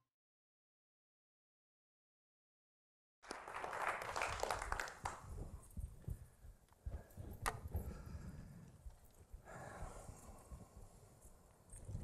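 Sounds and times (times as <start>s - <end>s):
audience applause: 3.2s - 5.3s.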